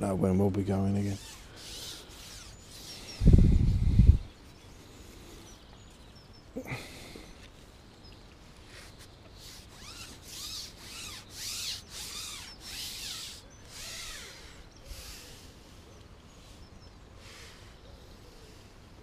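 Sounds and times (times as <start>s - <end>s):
short scraping strokes: 1.0s - 4.2s, 8.7s - 15.8s.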